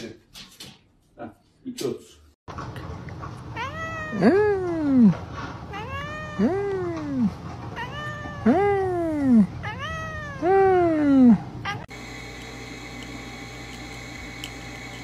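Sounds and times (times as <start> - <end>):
cat yowling meows: 3.5 - 11.9.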